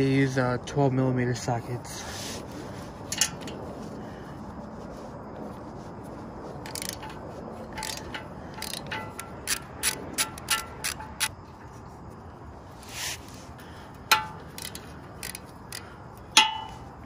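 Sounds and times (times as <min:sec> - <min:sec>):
socket ratchet clicking: 0:06.6 - 0:11.4, 0:14.1 - 0:16.8.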